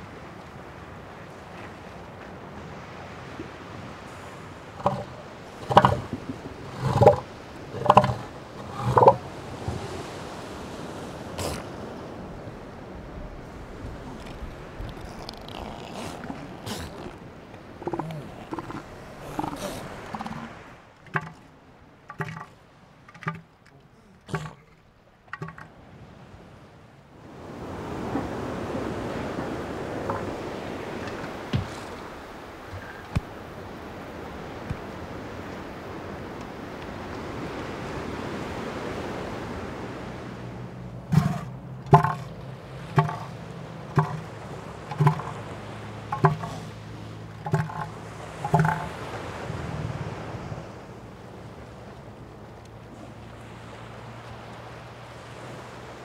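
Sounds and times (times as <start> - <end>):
surf washing over rocks: 0.0 - 56.0
elephant seal calling: 2.6 - 26.2, 27.7 - 33.8, 40.9 - 49.4.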